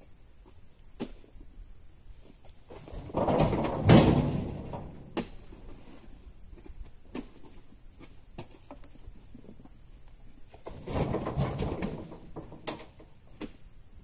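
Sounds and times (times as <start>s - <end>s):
heavy knock with scraping rustle: 2.8s - 6.0s, 10.7s - 13.1s.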